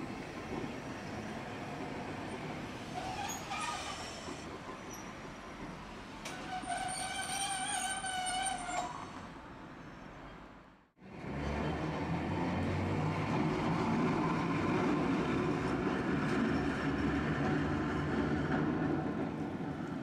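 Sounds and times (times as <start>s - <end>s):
street traffic: 0.0s - 20.0s
streetcar rumbling on track: 0.0s - 20.0s.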